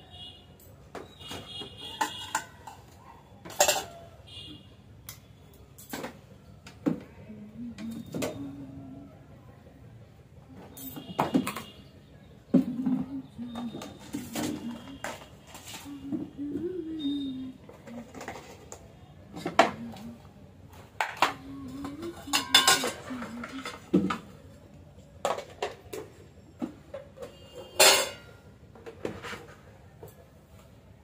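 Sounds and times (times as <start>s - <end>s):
containers and dishes clinking: 0.6s - 4.1s, 10.6s - 11.9s, 12.5s - 20.1s, 20.7s - 24.5s, 25.2s - 30.2s.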